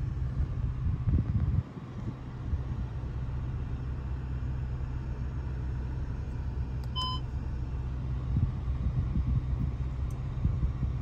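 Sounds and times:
short electronic beep: 7.0s - 7.2s.

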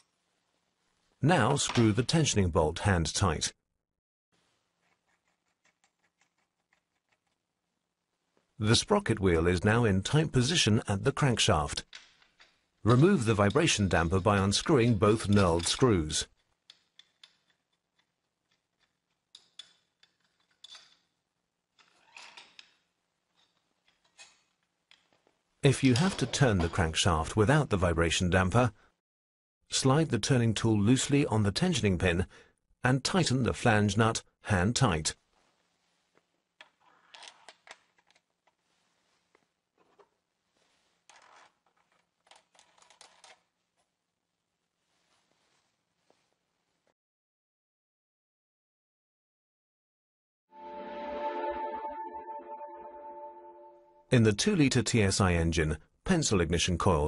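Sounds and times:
tool clicks and metal scraping: 11.8s - 21.2s, 21.8s - 25.2s.

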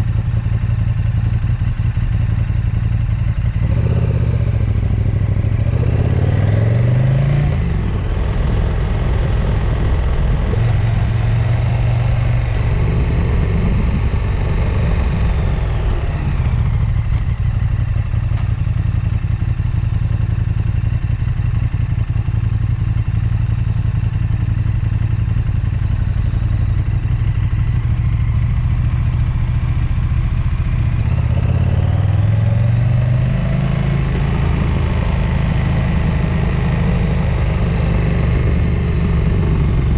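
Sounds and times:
vehicle engine revving: 3.6s - 17.4s, 30.2s - 39.9s.

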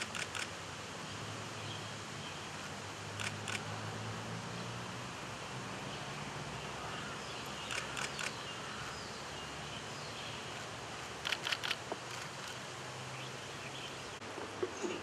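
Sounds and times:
steady background noise: 0.0s - 15.0s
camera shutters firing: 11.2s - 12.6s.

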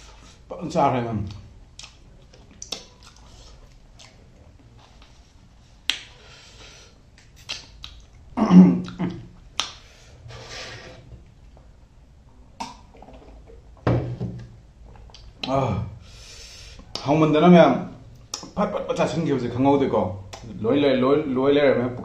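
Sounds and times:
food snapping: 9.6s - 9.8s.

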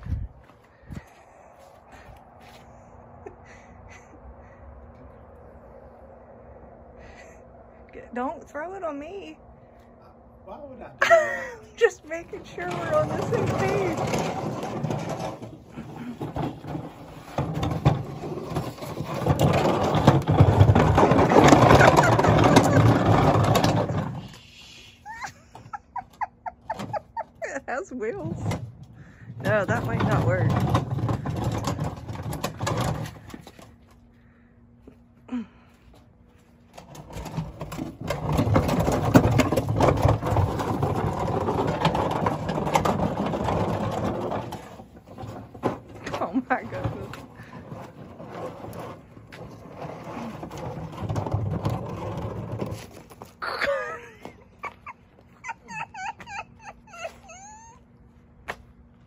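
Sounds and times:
trash can scraping on concrete: 11.2s - 24.5s, 25.1s - 34.4s, 36.4s - 57.6s.

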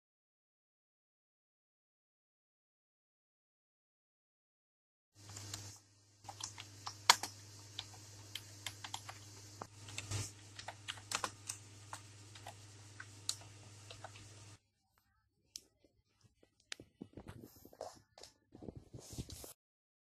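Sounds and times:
steady low hum and hiss: 5.2s - 14.6s.

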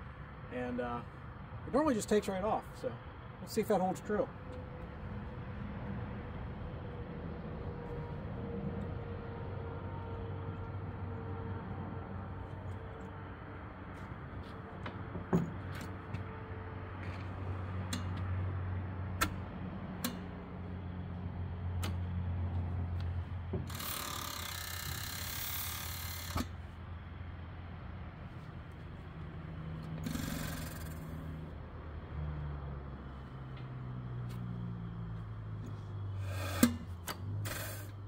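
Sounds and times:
engine sharp mechanical clicks: 19.1s - 20.4s, 21.8s - 22.0s, 23.0s - 26.6s, 29.8s - 31.3s, 36.3s - 38.0s.

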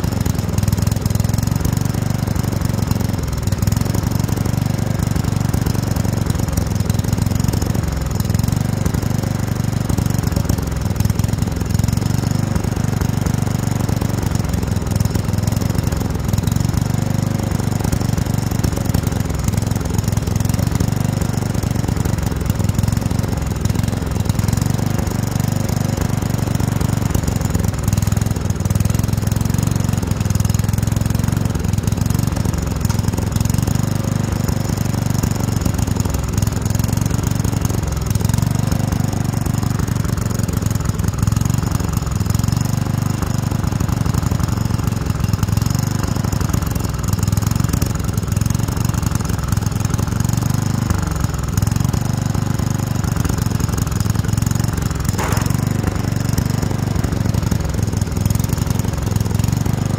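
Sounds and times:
lawn tractor engine running: 0.0s - 59.9s.

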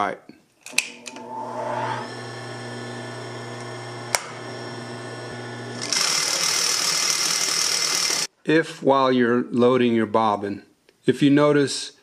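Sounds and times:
bobbin winder whirring: 0.7s - 8.3s
sewing machine motor humming: 0.8s - 8.3s.

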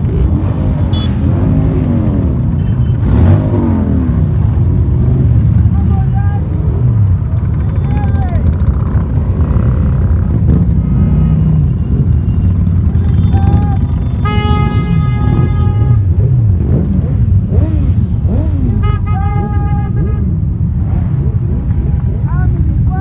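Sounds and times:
vehicle horn: 0.8s - 1.2s, 13.0s - 16.3s, 18.8s - 20.4s.

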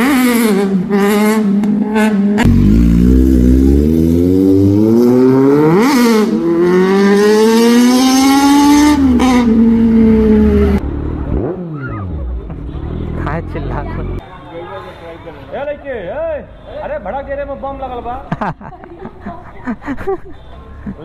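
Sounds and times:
motorcycle engine revving: 0.0s - 14.2s.

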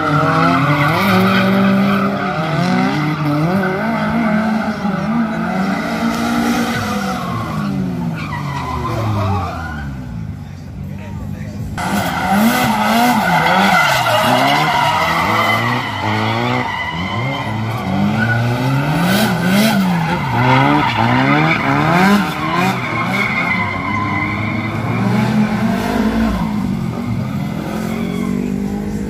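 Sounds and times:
car engine revving: 0.0s - 29.0s
tyres squealing: 11.8s - 29.0s.

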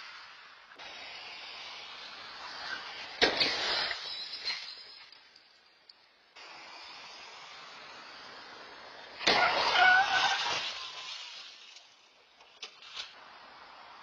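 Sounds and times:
road and camera hiss: 0.0s - 14.0s
vehicle crash: 2.3s - 5.4s, 9.2s - 13.2s.

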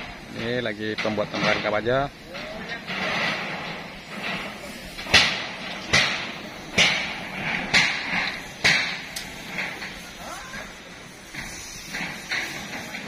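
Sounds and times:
hammer striking steel: 2.4s - 10.1s.

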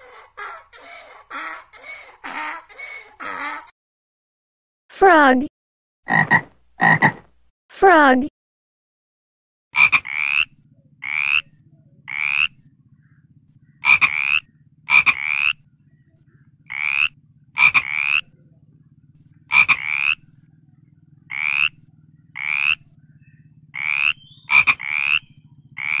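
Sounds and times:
frog croaking: 6.1s - 7.2s, 9.8s - 15.6s, 16.3s - 26.0s.

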